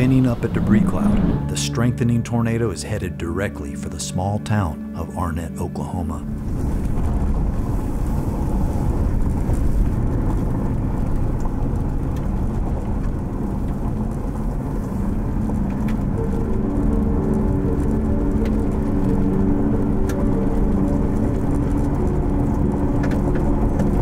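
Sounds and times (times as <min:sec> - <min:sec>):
steady pitched tones: 0:00.0 - 0:12.6
road and wind rumble: 0:06.3 - 0:24.0.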